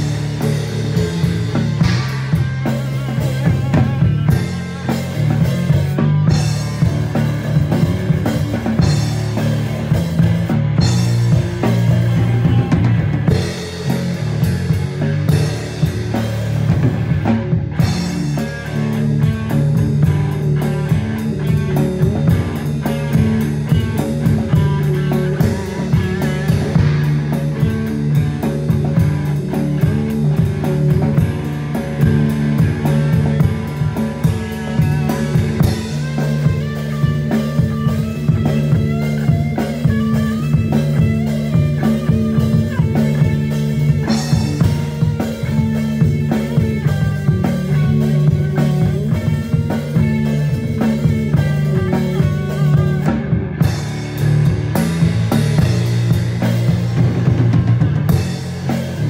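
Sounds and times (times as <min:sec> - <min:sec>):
drum kit beat: 0:00.0 - 0:59.0
rock music: 0:00.0 - 0:59.0.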